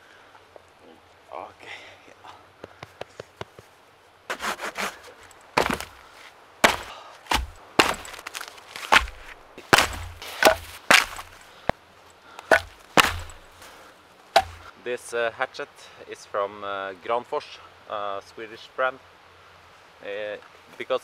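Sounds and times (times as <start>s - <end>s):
firewood logs knocking: 5.6s - 6.0s, 6.6s - 11.4s, 12.4s - 13.7s, 14.4s - 14.7s.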